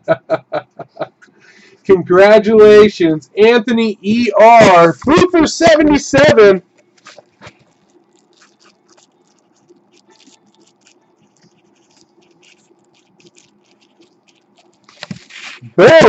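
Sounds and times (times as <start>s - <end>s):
envelope rustling: 6.8s - 15.6s
marker pen scratching on paper: 7.1s - 15.6s.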